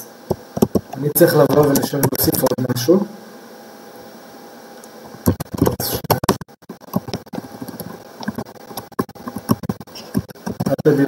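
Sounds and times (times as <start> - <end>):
computer keyboard typing: 0.6 - 0.9, 1.5 - 2.6, 5.2 - 10.9.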